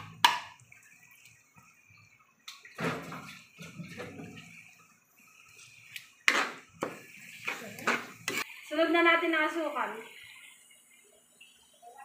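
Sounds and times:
spatula scraping in a wok: 0:03.0 - 0:08.7.

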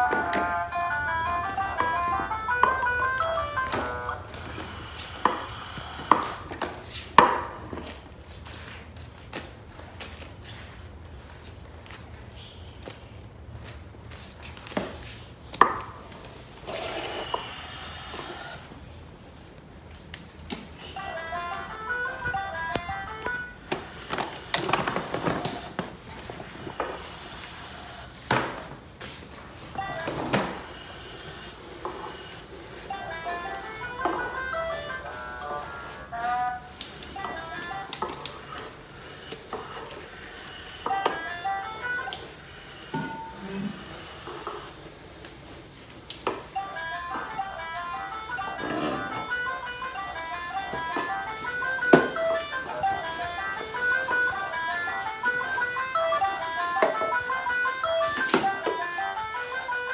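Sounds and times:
toy electronic tune: 0:00.0 - 0:06.5, 0:20.8 - 0:25.8, 0:29.7 - 0:44.7, 0:46.5 - 0:59.9.

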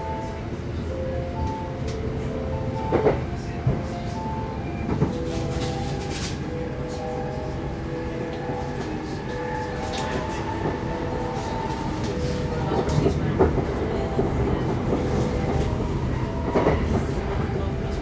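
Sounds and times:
train rumbling on the track: 0:00.0 - 0:18.0.

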